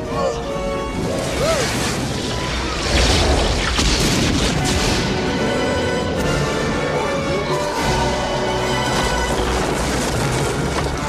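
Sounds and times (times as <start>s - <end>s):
dramatic film score: 0.0s - 11.0s
booming crash effects: 1.2s - 6.1s.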